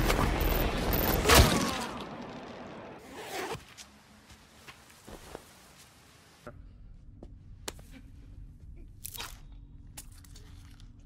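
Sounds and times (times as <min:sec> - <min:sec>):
low room hum: 0:04.2 - 0:11.0.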